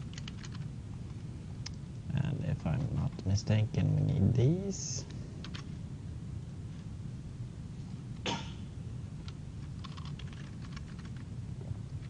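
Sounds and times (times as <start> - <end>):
faint room hum: 0.0 - 12.0
person coughing: 8.2 - 8.7.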